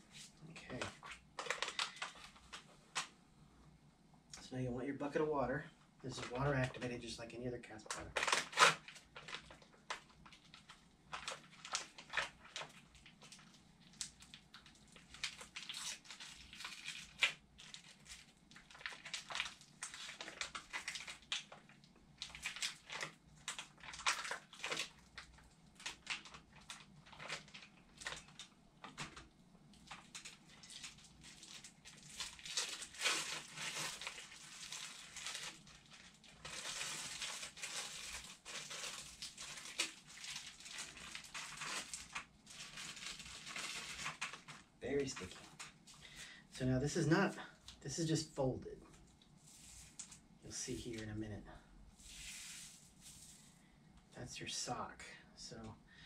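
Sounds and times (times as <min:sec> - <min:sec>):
packaging crinkling: 0:00.7 - 0:03.1, 0:07.9 - 0:46.2.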